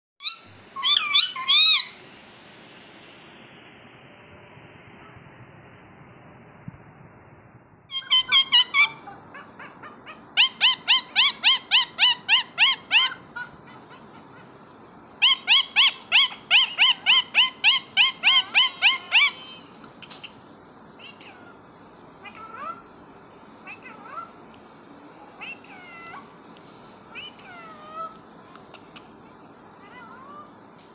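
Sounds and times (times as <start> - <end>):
parakeet calling: 0.2 - 2.0, 7.9 - 14.6, 15.2 - 20.4, 25.4 - 26.3, 27.1 - 29.1.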